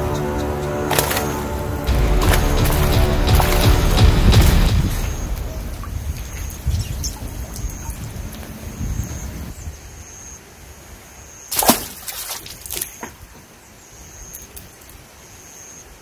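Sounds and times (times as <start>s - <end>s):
fish splashing in landing net: 0.9s - 5.2s, 11.5s - 13.0s
wind rumble on microphone: 1.8s - 10.0s.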